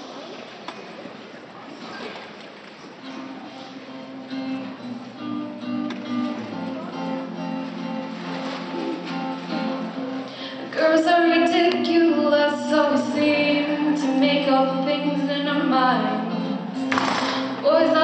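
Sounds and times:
acoustic guitar strumming: 3.0s - 18.0s
girl singing: 10.7s - 16.8s, 17.6s - 18.0s.

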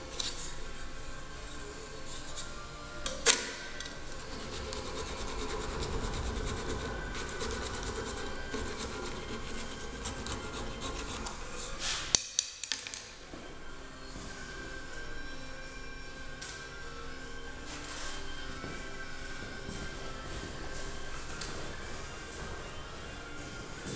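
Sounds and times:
hand file rasping on metal: 4.1s - 12.0s.

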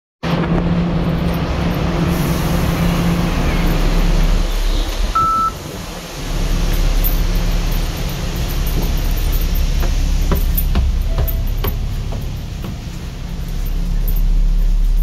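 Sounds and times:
bus engine idling: 0.3s - 15.0s
card reader beep: 5.2s - 5.6s.

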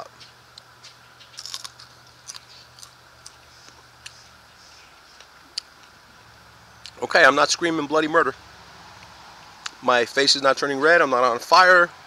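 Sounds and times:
person crunching a pepper: 1.2s - 4.2s.

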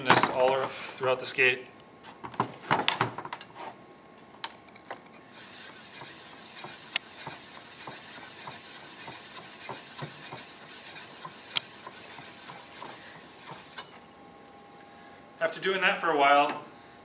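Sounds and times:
stone scraping on steel: 5.4s - 13.9s.

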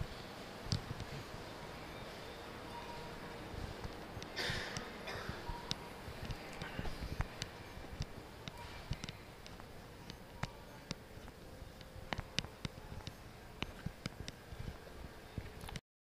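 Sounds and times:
faint steady hum: 0.0s - 15.8s
sharp clicks and taps: 5.6s - 14.4s.

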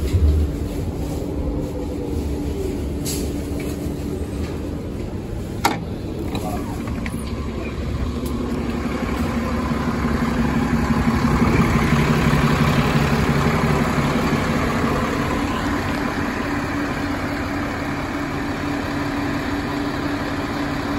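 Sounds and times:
bus diesel engine idling: 0.0s - 20.9s.

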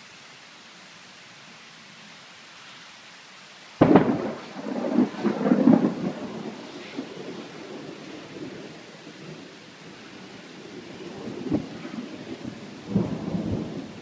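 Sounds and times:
rain hissing: 0.0s - 14.0s
thunder crack and rumble: 3.8s - 8.7s, 10.8s - 14.0s.

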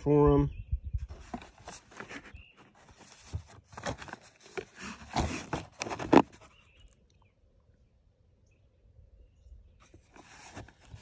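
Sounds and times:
cardboard box rustling: 1.0s - 6.6s, 9.8s - 11.0s.

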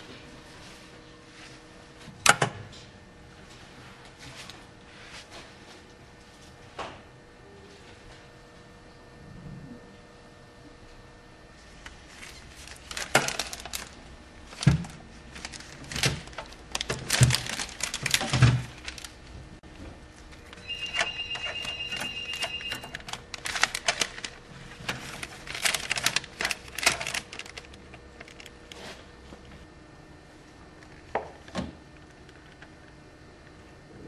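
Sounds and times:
plastic trays clicking and crinkling: 12.2s - 19.2s, 20.9s - 28.6s
high beeping tone: 20.6s - 23.0s.

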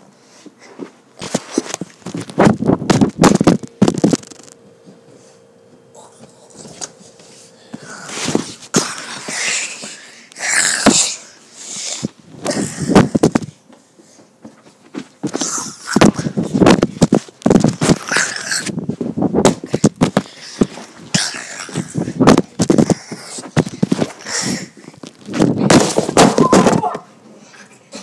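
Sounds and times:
camera knocking and rubbing: 16.0s - 18.1s, 21.8s - 24.2s.

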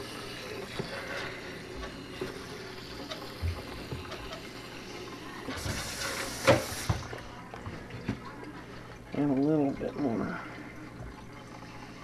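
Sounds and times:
tap water running into plastic tank: 0.0s - 12.0s.

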